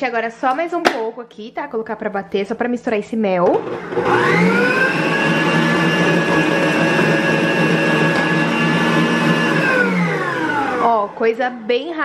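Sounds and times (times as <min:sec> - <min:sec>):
stand mixer motor whining: 0:03.5 - 0:11.3.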